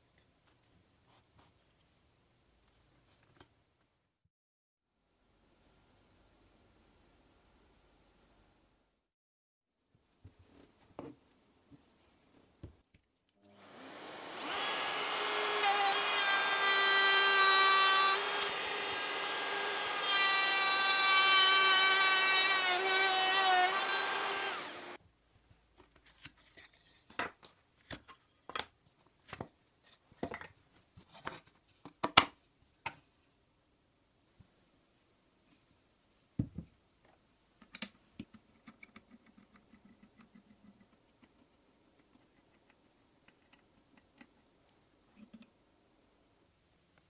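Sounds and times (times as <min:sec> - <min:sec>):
router whining: 0:13.4 - 0:25.0
router bit cutting wood: 0:13.5 - 0:25.0.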